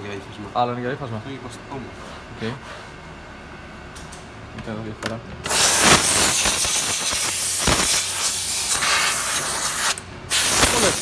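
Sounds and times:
spray hissing onto fabric: 5.5 - 11.0.

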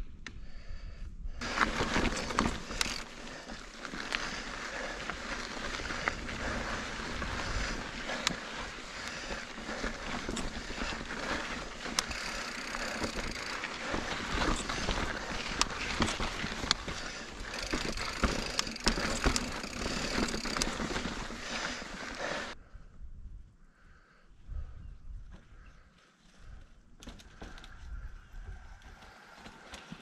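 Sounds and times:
bike clicks and knocks: 1.4 - 22.2, 27.0 - 27.8
tyres rolling on rock and grit: 8.7 - 22.5.

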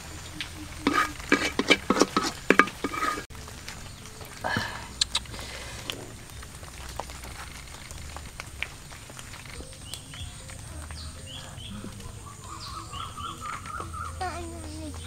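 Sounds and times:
wavering bird call: 0.0 - 1.7, 9.6 - 15.0
high bird chirps: 0.0 - 3.2, 9.3 - 15.0
steady low rumble: 0.0 - 15.0.

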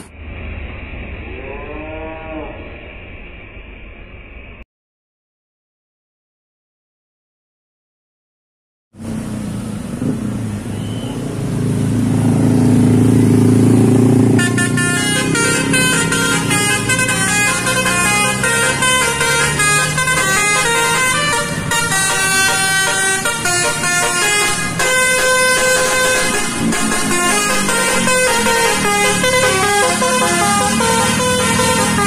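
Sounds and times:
traffic engine rumble: 0.0 - 1.4, 9.0 - 32.0
musical air horn melody: 14.3 - 32.0.

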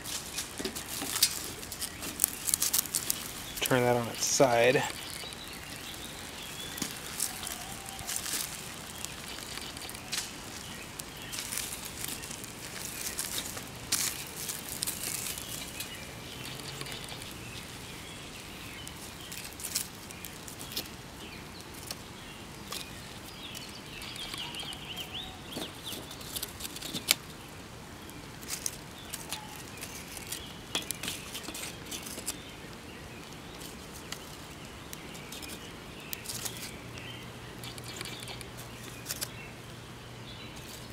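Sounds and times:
onions sizzling on charcoal: 0.0 - 40.9
sharp clicks and pops: 0.1 - 17.7, 33.2 - 39.4.

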